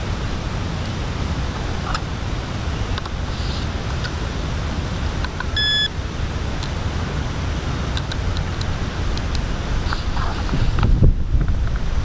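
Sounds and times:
short electronic beep: 5.6 - 5.9
wind buffeting microphone: 6.0 - 12.0.

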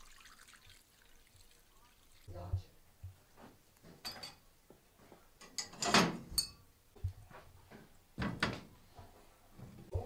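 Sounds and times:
metal clanking at a stove: 4.0 - 4.4, 5.4 - 6.6.

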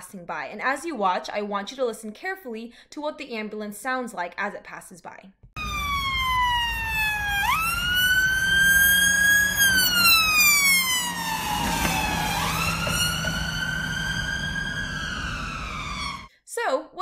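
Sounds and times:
ambulance siren wailing: 5.6 - 16.3
engine and road rumble: 5.6 - 16.3.

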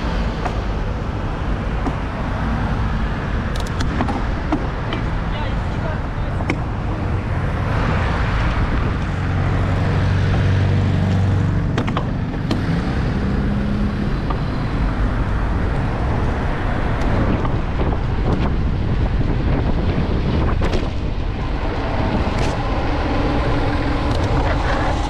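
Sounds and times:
steady rushing traffic noise: 0.0 - 25.0
vehicle engine hum: 0.0 - 25.0
sharp clicks: 3.5 - 4.1.

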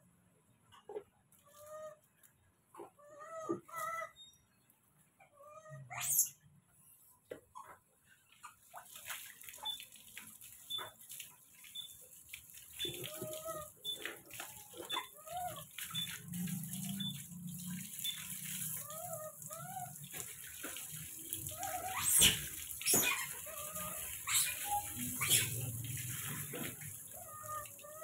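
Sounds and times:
water running from a hose: 8.5 - 28.0
water splashing on concrete: 8.7 - 28.0
monkey calling: 21.5 - 25.7.

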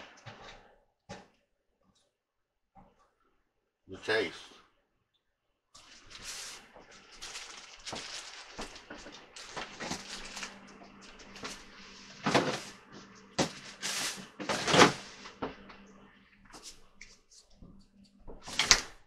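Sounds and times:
faint steady hum: 5.8 - 19.0.

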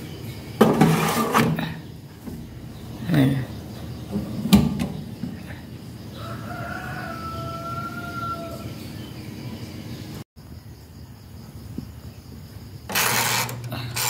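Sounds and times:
rooster crowing: 6.1 - 8.8.

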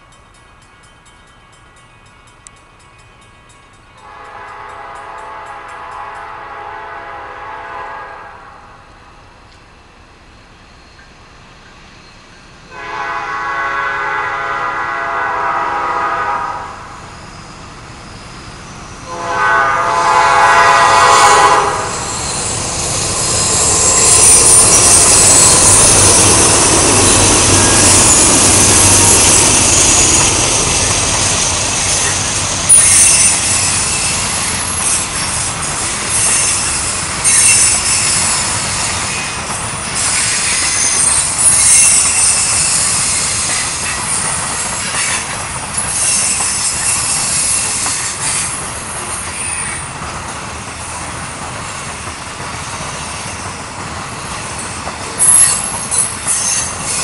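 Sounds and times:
deep locomotive engine rumble: 0.0 - 57.0
high-pitched rail noise: 0.0 - 57.0
locomotive horn blasts: 4.0 - 8.8, 12.7 - 16.9, 19.1 - 22.0.

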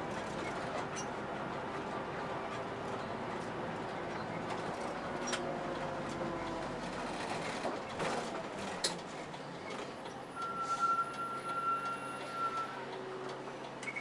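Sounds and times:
bus engine and road noise: 0.0 - 14.0.

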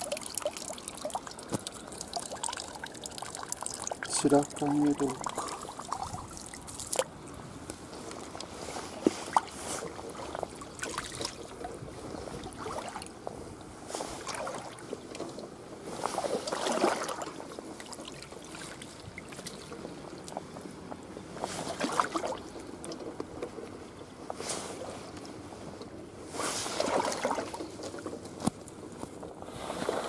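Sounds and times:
water splashing while wading: 0.0 - 23.2, 26.4 - 28.2.

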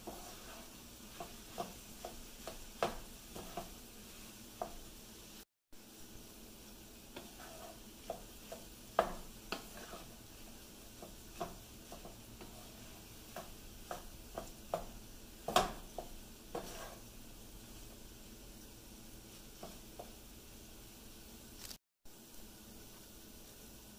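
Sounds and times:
spatula scraping frying pan: 0.0 - 5.0, 6.9 - 20.3
faint sizzle: 0.0 - 23.9.

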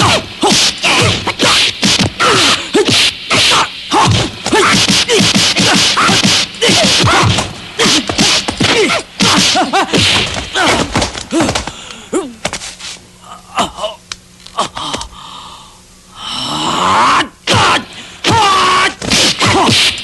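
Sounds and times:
shouts and grunts: 0.0 - 9.6, 16.5 - 19.9
punch and kick whacks: 0.0 - 11.6, 18.3 - 20.0.

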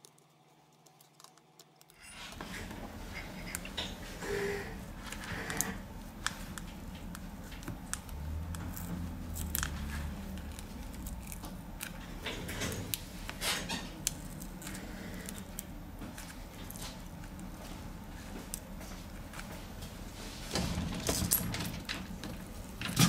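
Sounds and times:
hand tools clicking and scraping: 1.9 - 17.4.

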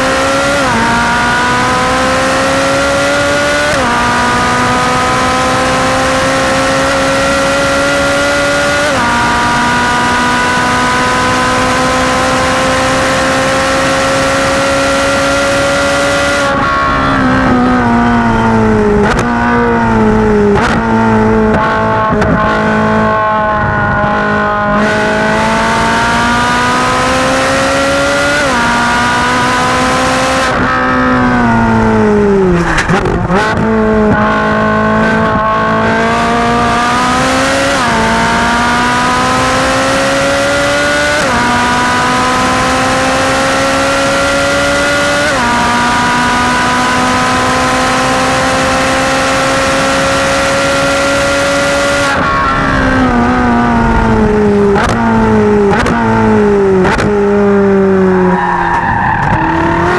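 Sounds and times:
sports car engine at full throttle: 0.0 - 59.9
engine downshift throttle blips: 51.8 - 59.9.

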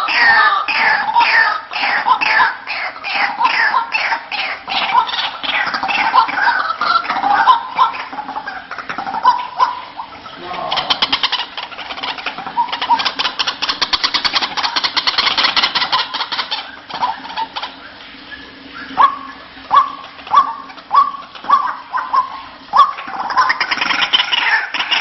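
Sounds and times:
waterhen short calls: 0.0 - 25.0
bird rattling chatter: 10.8 - 17.2.

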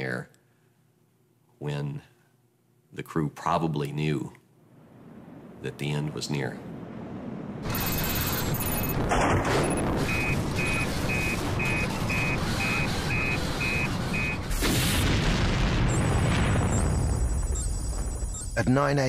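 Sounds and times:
short electronic beeps: 7.6 - 9.0, 9.6 - 14.5, 15.9 - 18.6
high warbling alarm tone: 7.6 - 15.0, 15.8 - 19.0
deep boom: 8.8 - 12.1, 14.4 - 18.6.

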